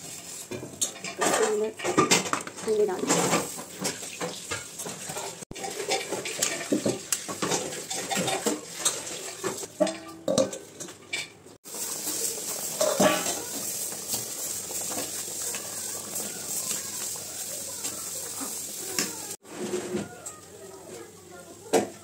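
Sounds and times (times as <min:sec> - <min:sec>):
steel lid clattering: 0:00.5 - 0:11.4, 0:12.0 - 0:13.5
curry bubbling: 0:03.0 - 0:10.8, 0:11.6 - 0:21.9.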